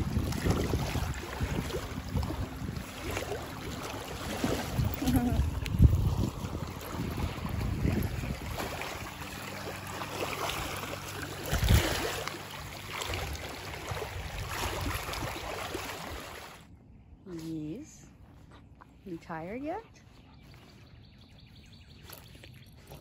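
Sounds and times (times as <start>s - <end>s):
wind buffeting microphone: 0.0s - 12.2s, 12.8s - 16.4s
small waves lapping at shore: 0.0s - 16.7s.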